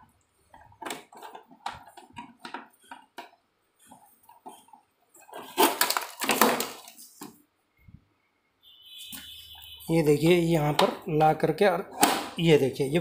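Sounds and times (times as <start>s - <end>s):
plastic knocking and scraping: 0.5s - 7.4s, 10.6s - 11.0s, 11.9s - 12.4s.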